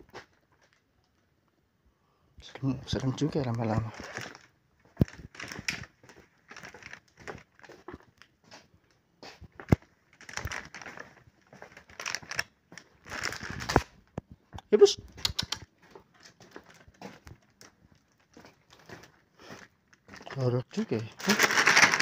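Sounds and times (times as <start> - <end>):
crinkling and rustling: 0.0 - 1.6, 3.0 - 22.0
sharp clicks: 15.2 - 15.7.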